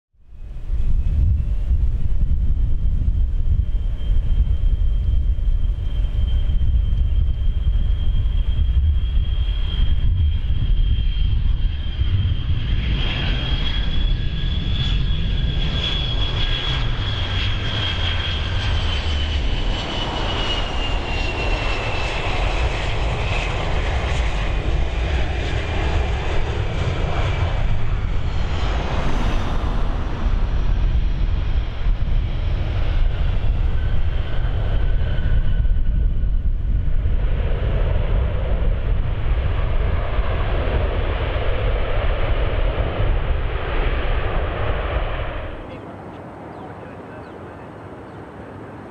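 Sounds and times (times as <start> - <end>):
jet engine rumble and whine: 0.2 - 48.9.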